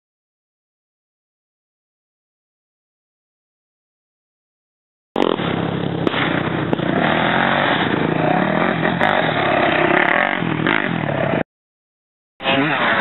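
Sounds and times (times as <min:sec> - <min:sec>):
dirt bike engine revving: 0:05.2 - 0:11.4, 0:12.4 - 0:13.0.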